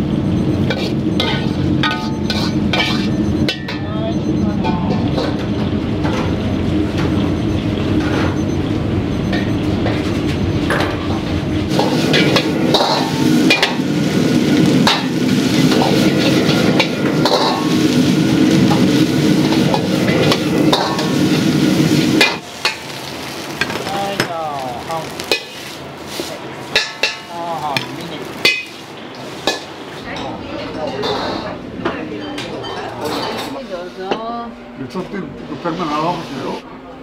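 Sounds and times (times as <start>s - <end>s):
loud gas burner: 0.0s - 32.0s, 34.8s - 36.7s
rice stir-frying in a wok: 0.2s - 3.6s, 11.1s - 30.1s.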